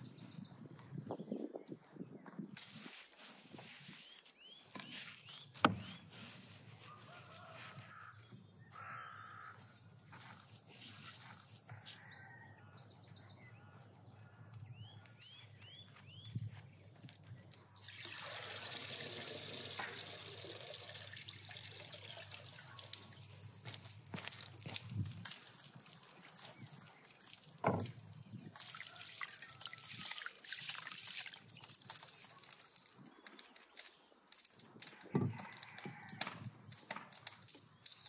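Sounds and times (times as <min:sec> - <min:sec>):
faint handling sounds: 0:02.6 - 0:08.9
birds chirping: 0:03.9 - 0:06.6, 0:07.2 - 0:18.0
water splashing out of metal bowl: 0:25.2 - 0:32.1.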